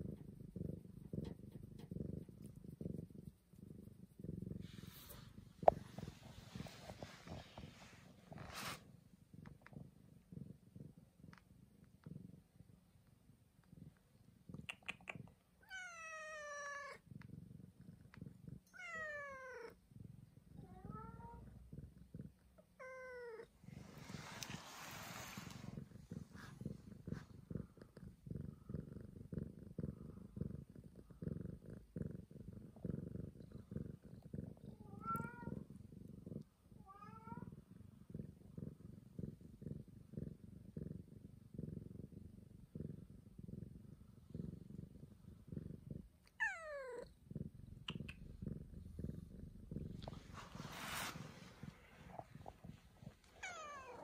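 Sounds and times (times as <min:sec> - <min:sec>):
cat purring: 0:00.0 - 0:54.0
cat meowing: 0:46.4 - 0:47.0, 0:53.4 - 0:54.0.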